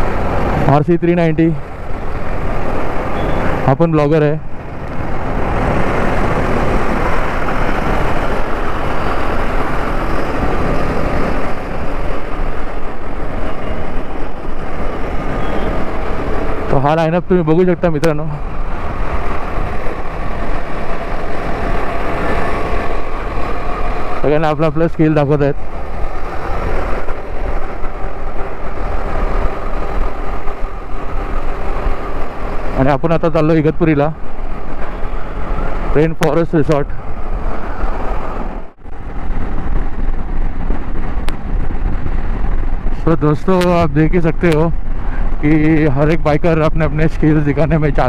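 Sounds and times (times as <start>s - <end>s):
road rumble: 0.0s - 48.0s
wind noise over microphone: 0.0s - 48.0s
motorcycle engine: 1.6s - 36.1s.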